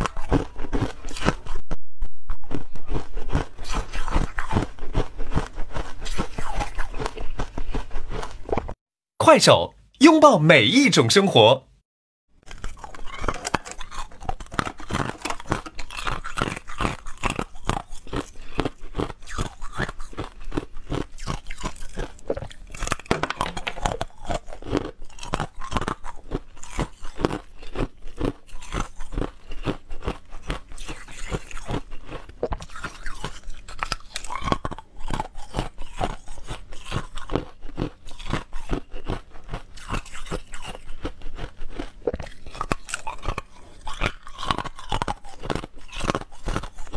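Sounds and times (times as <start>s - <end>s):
ice crunching between teeth: 0.0s - 1.6s, 2.3s - 8.8s, 12.4s - 46.9s.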